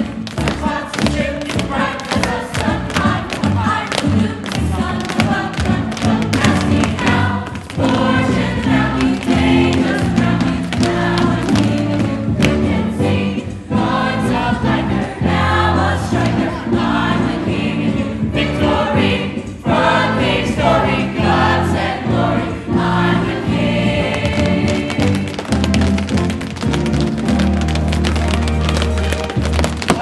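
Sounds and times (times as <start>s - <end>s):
chorus singing show tune: 0.0s - 25.5s
instrumental accompaniment: 0.0s - 30.0s.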